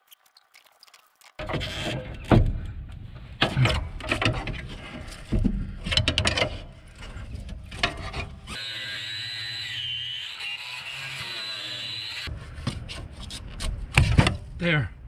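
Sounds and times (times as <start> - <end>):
cutoff wheel cutting metal: 8.5 - 12.3.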